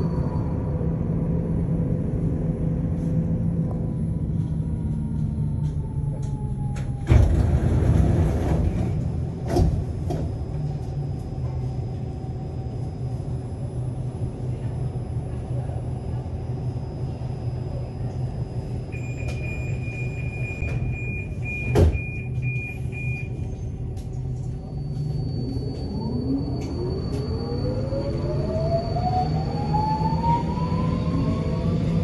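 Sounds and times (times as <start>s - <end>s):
pulsing door-warning beep: 18.6s - 23.6s, 24.6s - 31.6s.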